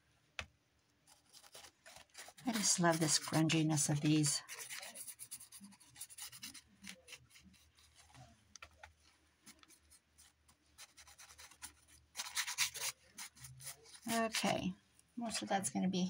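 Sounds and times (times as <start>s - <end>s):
paintbrush scratching on cardboard: 1.1s - 8.3s, 9.0s - 14.6s.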